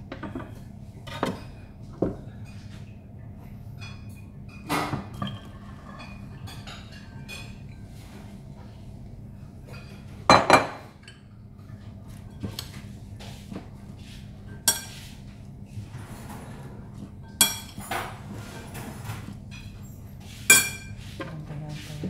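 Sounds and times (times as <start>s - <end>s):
ceramic bowls clinking: 9.8s - 11.2s, 17.0s - 21.0s.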